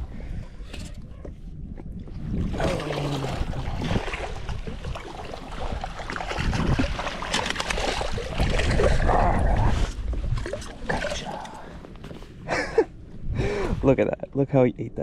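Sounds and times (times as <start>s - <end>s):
wind rumbling on microphone: 0.0s - 14.2s
water splashing: 2.3s - 11.8s.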